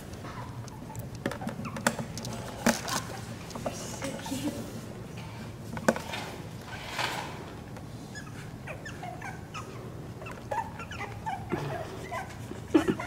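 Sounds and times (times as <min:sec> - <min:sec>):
puppies squeaking and whimpering: 0:00.3 - 0:03.3, 0:08.0 - 0:13.0.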